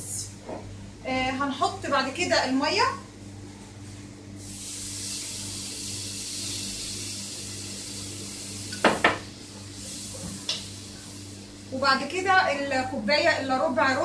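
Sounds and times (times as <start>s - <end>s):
water sizzling in hot oil: 4.4s - 12.0s.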